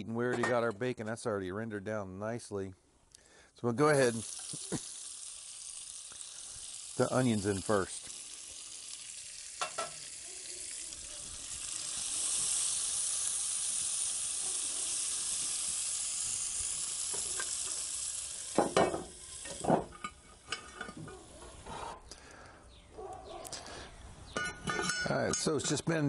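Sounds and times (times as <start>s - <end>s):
onions sizzling in fat: 3.7s - 22.4s.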